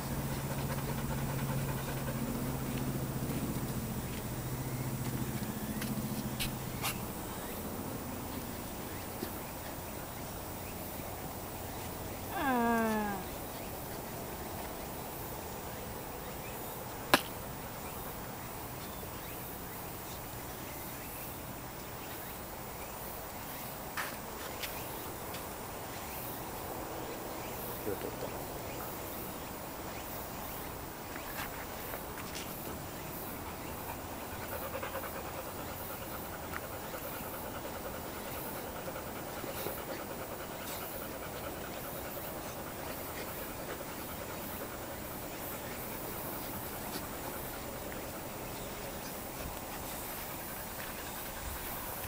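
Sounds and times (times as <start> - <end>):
puppy panting rapidly: 0.0 - 5.5, 32.6 - 52.0
paws scraping dirt: 0.0 - 7.6, 31.0 - 52.0.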